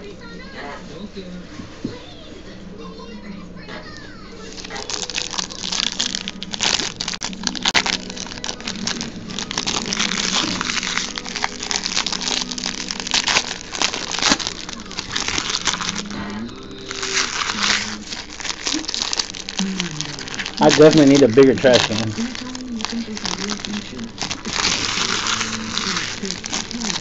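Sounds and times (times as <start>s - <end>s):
wrapper crinkling and tearing: 3.9s - 27.0s.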